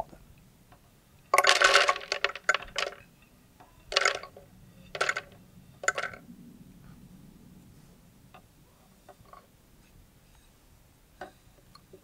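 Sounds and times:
almonds clattering into plastic jar: 1.4 - 3.0, 3.9 - 4.3, 5.0 - 6.2.

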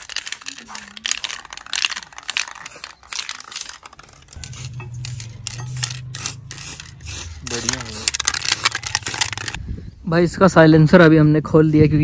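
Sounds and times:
aerosol spray can hissing: 0.0 - 9.6.

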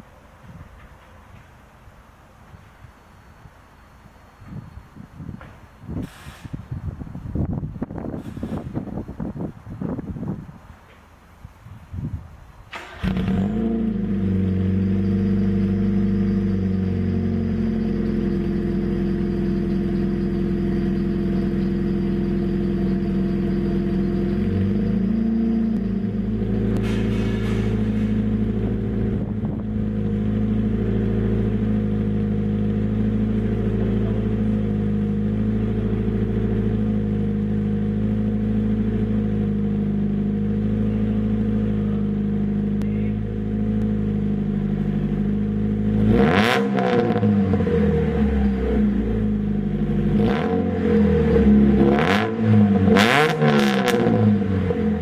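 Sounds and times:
car engine idling: 12.7 - 46.5, 47.1 - 53.0.

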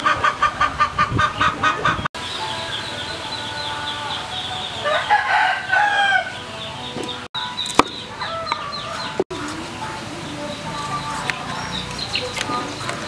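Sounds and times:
chickens clucking: 0.0 - 13.0
rooster crowing: 4.8 - 6.4.

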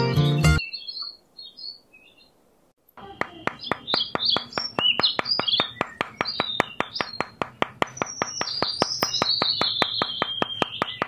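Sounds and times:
birds chirping: 3.0 - 11.0
small hammer tapping wood: 3.2 - 11.0.

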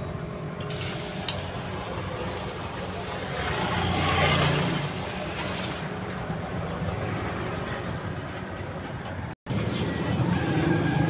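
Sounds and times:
road noise: 0.0 - 11.0
vehicle engine hum: 0.2 - 11.0.

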